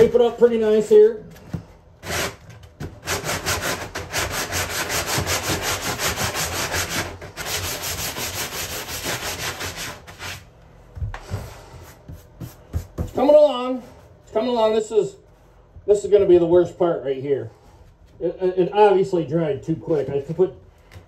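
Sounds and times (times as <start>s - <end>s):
sanding sponge scrubbing fiberglass: 3.0s - 10.5s.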